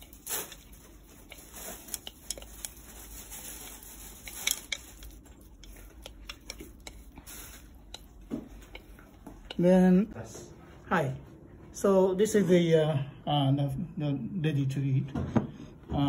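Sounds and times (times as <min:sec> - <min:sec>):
chopsticks tapping a bowl: 0:04.2 - 0:09.9.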